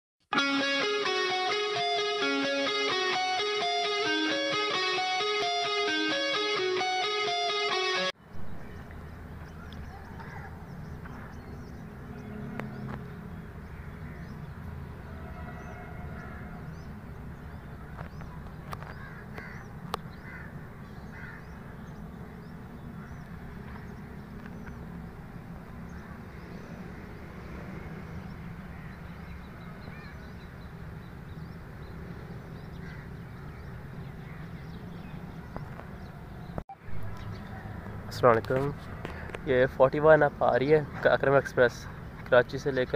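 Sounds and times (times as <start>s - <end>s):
bird calls: 8.2s - 38.0s
crows cawing: 9.9s - 10.6s, 13.7s - 14.3s, 15.0s - 16.8s, 18.8s - 21.9s, 25.9s - 26.5s, 28.7s - 29.1s, 29.9s - 30.3s, 32.7s - 34.7s.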